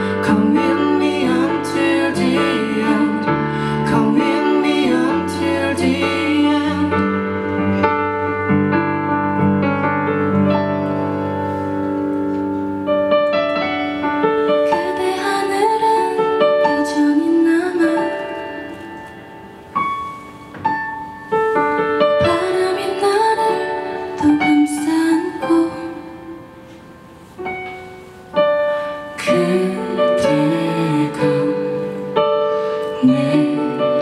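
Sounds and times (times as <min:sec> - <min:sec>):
person singing: 0:00.0 - 0:07.5, 0:29.2 - 0:32.2, 0:32.8 - 0:34.0
piano chords: 0:00.0 - 0:34.0.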